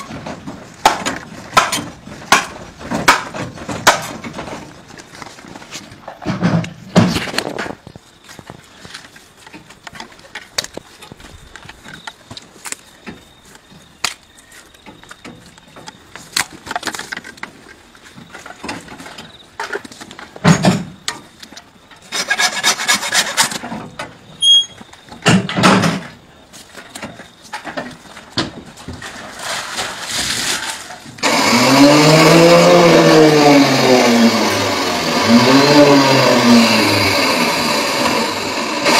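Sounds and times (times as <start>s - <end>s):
rapid sawing: 22.1s - 23.6s
motor starting up: 31.2s - 38.9s.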